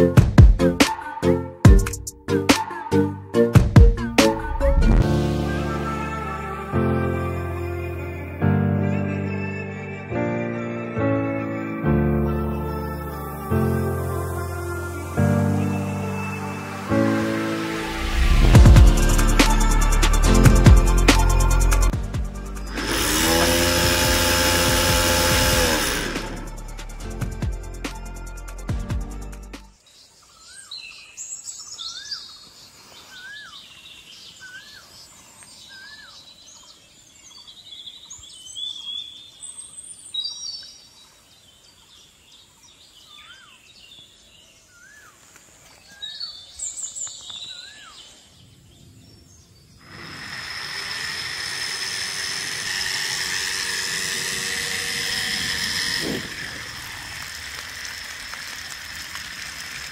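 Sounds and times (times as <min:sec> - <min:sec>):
water pump motor whining: 0:17.8 - 0:27.6, 0:49.8 - 0:59.9
birds chirping and calling: 0:30.0 - 0:56.7
rushing spray of water: 0:54.3 - 0:59.9.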